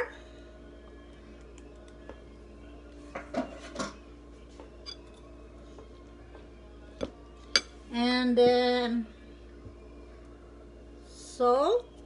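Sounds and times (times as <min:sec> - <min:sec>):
faint steady hum: 0:00.0 - 0:12.0
kitchenware clinking and scraping: 0:03.1 - 0:04.0, 0:04.8 - 0:05.2.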